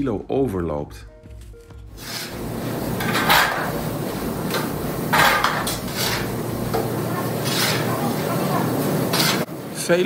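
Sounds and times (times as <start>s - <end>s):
shovels scraping floor: 1.9s - 9.5s
steady low hum: 2.4s - 9.8s.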